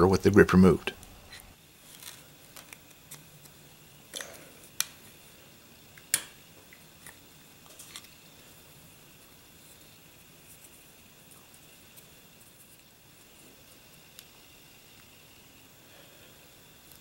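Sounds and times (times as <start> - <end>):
small clicks and scrapes: 1.3 - 5.0, 7.0 - 8.2.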